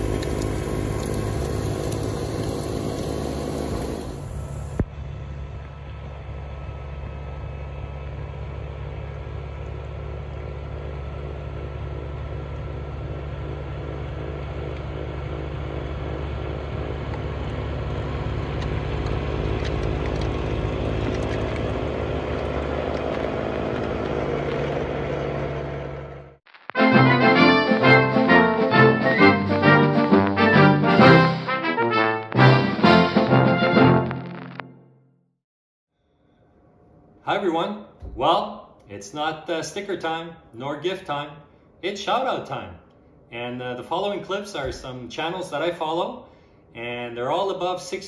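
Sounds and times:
tractor diesel engine running: 0.0s - 26.4s.

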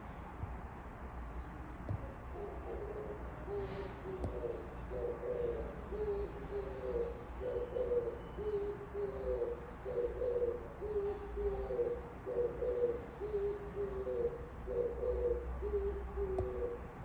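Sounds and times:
dove cooing: 1.9s - 17.0s.

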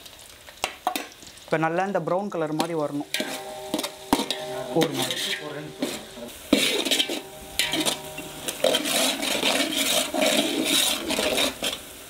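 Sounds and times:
onions sizzling in hot oil: 0.0s - 12.0s
metal spoon stirring in metal pot: 2.5s - 12.0s.

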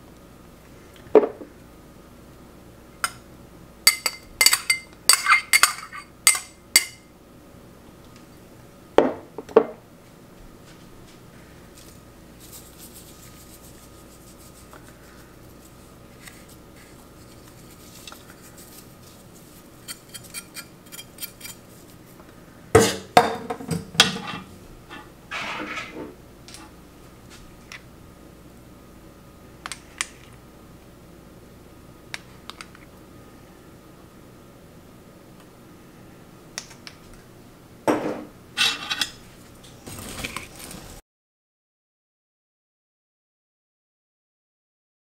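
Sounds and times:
metal spoons clinking on bowl: 3.9s - 7.0s
spoon scraping stir: 15.6s - 21.8s.

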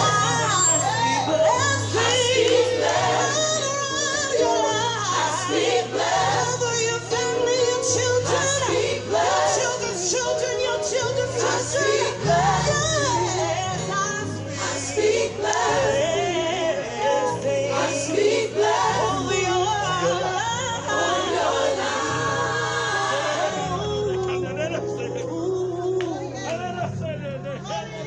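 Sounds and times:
gospel choir singing: 0.0s - 25.9s.

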